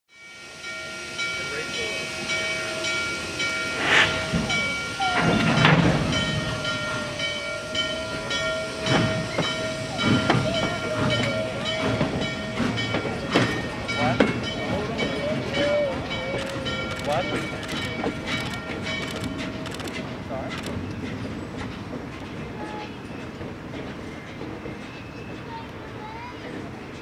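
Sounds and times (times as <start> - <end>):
steady high tone: 0.2 - 13.0
steam locomotive exhaust chuffs: 0.2 - 25.4
hissing steam: 0.3 - 18.9.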